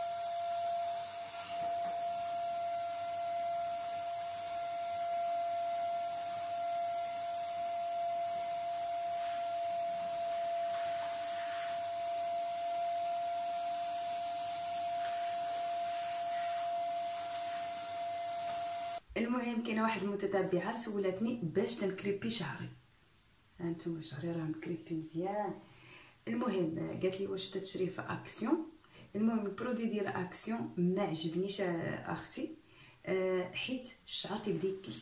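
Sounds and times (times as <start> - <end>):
vacuum cleaner whining: 0.0 - 19.0
nozzle pushed over rug: 9.0 - 12.1, 14.6 - 19.0.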